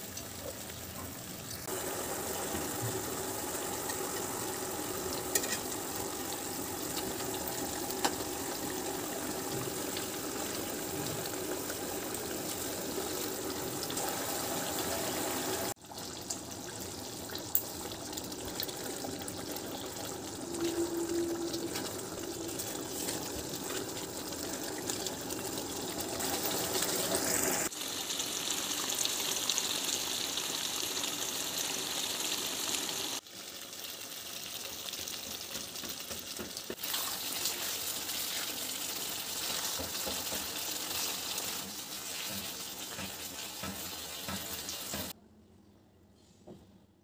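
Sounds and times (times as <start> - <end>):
curry bubbling and sizzling: 0.0 - 45.2.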